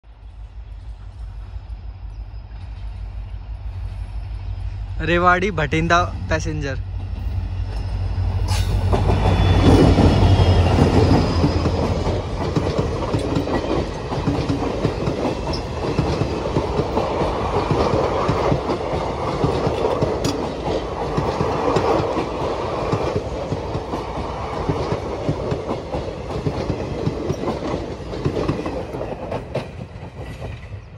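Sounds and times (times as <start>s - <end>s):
diesel locomotive engine hum: 0.0s - 30.9s
train wheels clacking on rail joints: 8.5s - 30.9s.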